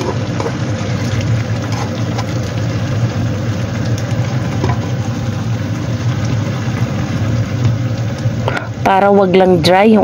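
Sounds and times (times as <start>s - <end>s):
food sizzling in a wok: 0.0s - 10.0s
spatula scraping a pan: 1.6s - 2.3s.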